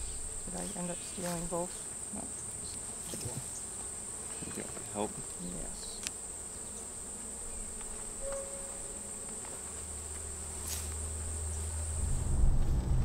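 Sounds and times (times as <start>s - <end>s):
crickets trilling: 0.0s - 13.0s
car cabin road rumble: 11.9s - 13.0s.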